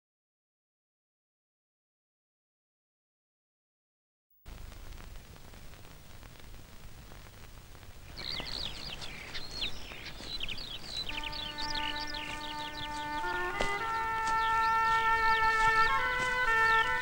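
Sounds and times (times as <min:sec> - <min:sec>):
old film soundtrack hiss and crackle: 0:04.5 - 0:17.0
birds chirping and twittering: 0:08.0 - 0:17.0
held music notes: 0:08.1 - 0:17.0.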